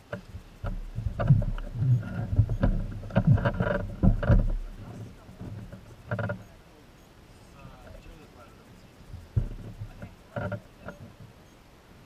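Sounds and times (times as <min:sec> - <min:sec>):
jet ski hull knocking: 0:00.1 - 0:06.4, 0:09.1 - 0:11.3.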